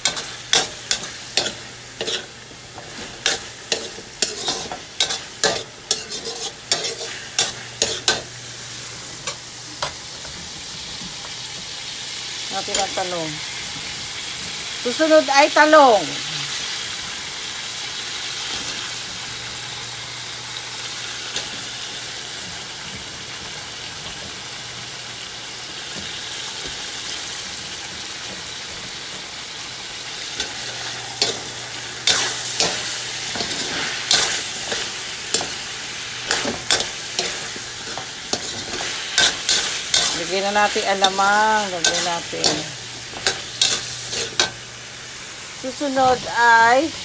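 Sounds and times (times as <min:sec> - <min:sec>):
metal spoon scraping a wok: 0:00.0 - 0:08.3, 0:30.4 - 0:35.6, 0:36.2 - 0:44.6
food sizzling in a wok: 0:00.0 - 0:47.0.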